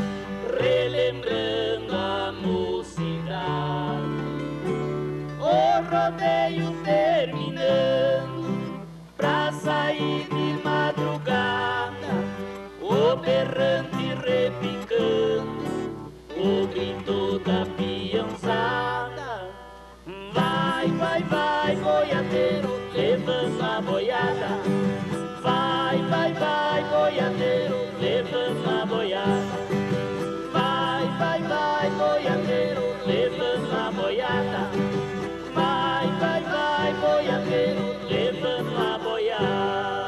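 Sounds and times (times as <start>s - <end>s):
viola and guitar playing: 0.0s - 19.1s, 20.3s - 40.0s.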